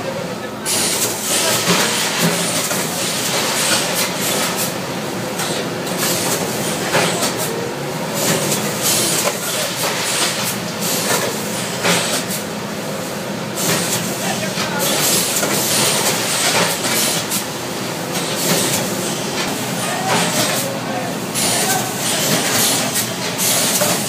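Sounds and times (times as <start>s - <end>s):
bagging machine rattling rush: 0.7s - 4.7s, 8.1s - 12.4s, 13.6s - 24.0s.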